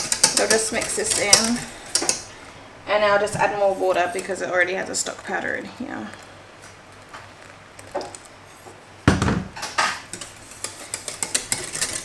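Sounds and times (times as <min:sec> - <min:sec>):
whisk scraping a metal saucepan: 0:00.0 - 0:02.2, 0:10.1 - 0:12.0.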